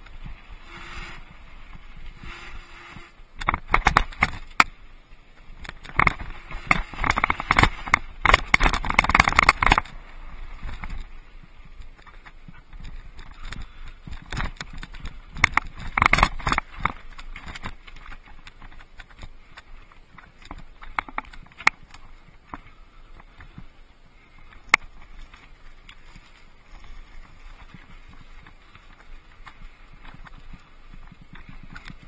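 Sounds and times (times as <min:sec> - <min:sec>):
mountain bike rattling over rocks: 0:00.0 - 0:32.0.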